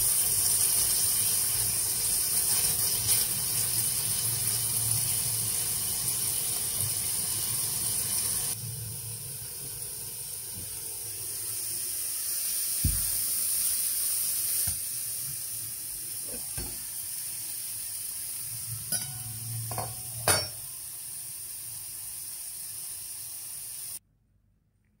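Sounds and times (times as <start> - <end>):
food sizzling in frying pan: 0.0 - 24.0
pan lid and spatula clinks: 18.9 - 20.6.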